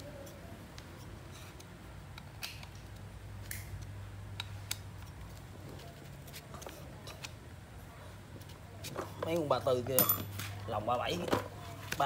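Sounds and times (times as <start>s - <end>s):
small clicks and taps of parts: 0.2s - 5.5s.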